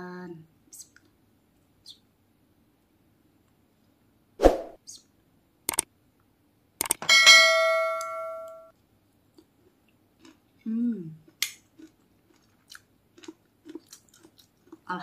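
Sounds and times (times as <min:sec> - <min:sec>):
notification bell chime: 0:07.1 - 0:08.7.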